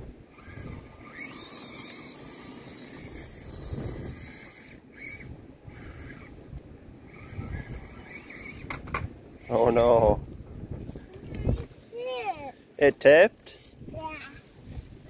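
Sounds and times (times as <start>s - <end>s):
toy car motor and gears whining: 0.0s - 10.2s
wind buffeting microphone: 0.0s - 11.8s, 13.7s - 15.0s.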